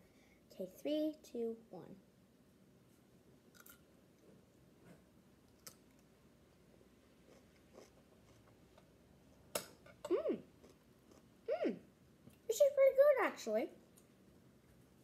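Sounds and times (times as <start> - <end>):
chewing crunches and mouth clicks: 3.5 - 3.8, 5.5 - 6.1, 7.2 - 8.8, 10.6 - 11.3.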